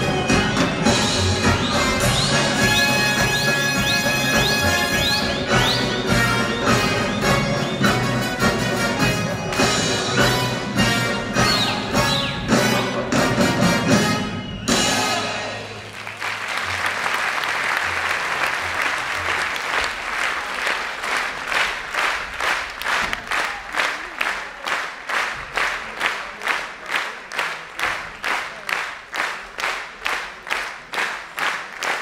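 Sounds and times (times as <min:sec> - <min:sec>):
rhythmic clapping in unison: 0:00.0 - 0:32.0
audience applauding: 0:15.5 - 0:32.0.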